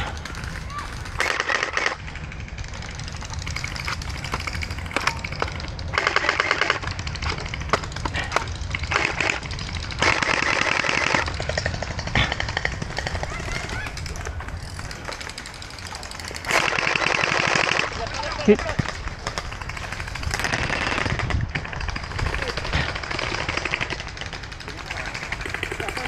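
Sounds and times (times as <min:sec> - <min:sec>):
single shots and clicks: 0:01.0 - 0:02.0.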